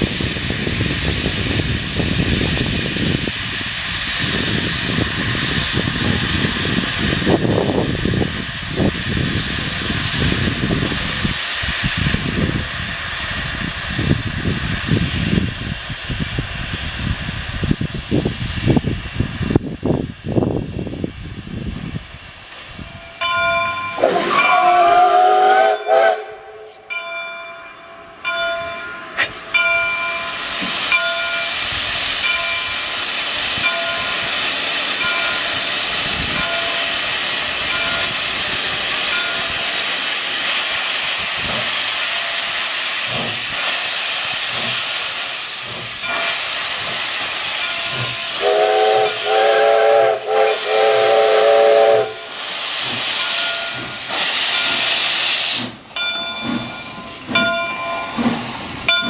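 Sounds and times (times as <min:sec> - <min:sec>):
steam hissing: 0:00.0 - 0:59.0
steam locomotive chime whistle: 0:22.8 - 0:32.9, 0:35.0 - 0:38.2, 0:47.6 - 0:52.4
locomotive bell ringing: 0:22.9 - 0:25.1, 0:25.8 - 0:32.9, 0:33.6 - 0:34.3, 0:35.0 - 0:38.2, 0:39.0 - 0:40.0, 0:47.6 - 0:48.5, 0:53.2 - 0:54.9, 0:55.9 - 0:59.0.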